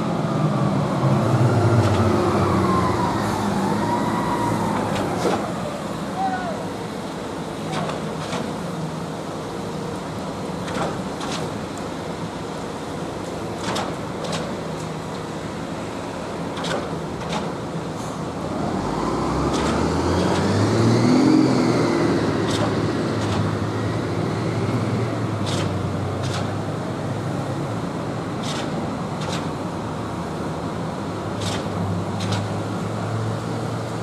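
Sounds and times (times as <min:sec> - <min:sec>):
passing vehicle engine: 0:00.0 - 0:06.3, 0:18.2 - 0:26.6
concrete pumps running: 0:00.8 - 0:20.5.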